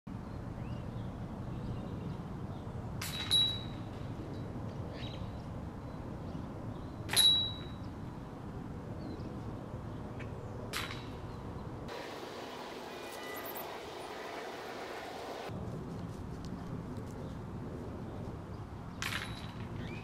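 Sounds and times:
disc striking basket chains: 0:07.1 - 0:07.8.

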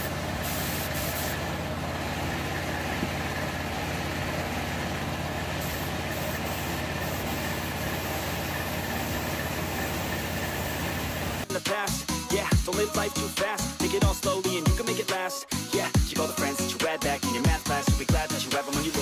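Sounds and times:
spray gun hissing: 0:00.0 - 0:01.5, 0:05.6 - 0:11.4
air compressor motor humming: 0:00.0 - 0:11.4.

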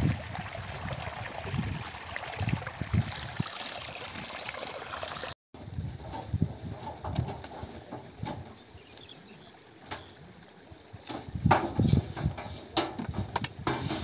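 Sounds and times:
water trickling over stones: 0:00.0 - 0:05.4.

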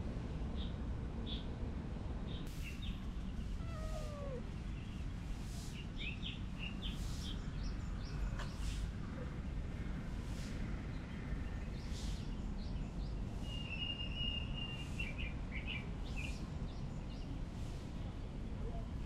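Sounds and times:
low background noise: 0:00.0 - 0:19.0
small birds chirping: 0:02.3 - 0:09.3
cat meowing: 0:03.5 - 0:04.5.

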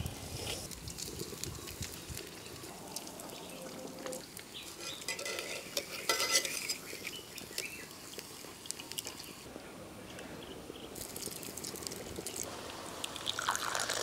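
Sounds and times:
oil sizzling and crackling: 0:00.0 - 0:09.5, 0:10.9 - 0:14.0
spoons scraping and clinking on pan: 0:04.0 - 0:07.8.

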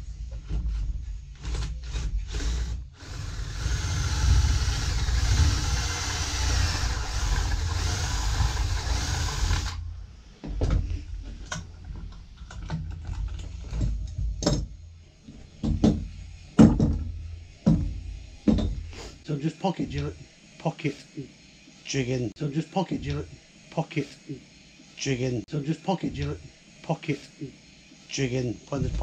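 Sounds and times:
cordless drill whining: 0:01.5 - 0:09.9
knocks and clatter of wood: 0:10.4 - 0:14.7, 0:15.6 - 0:17.1.

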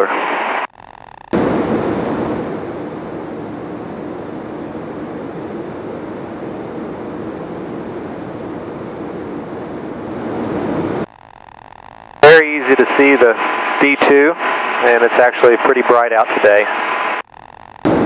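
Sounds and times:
aircraft engine and propeller: 0:01.4 - 0:11.0.

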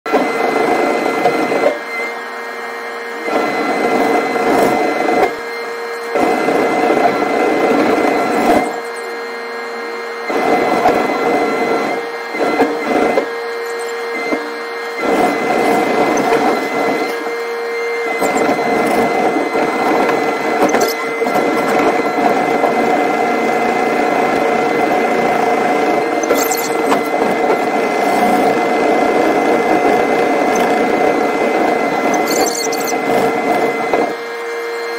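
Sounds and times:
hydraulic whine of excavator: 0:00.1 - 0:34.9.

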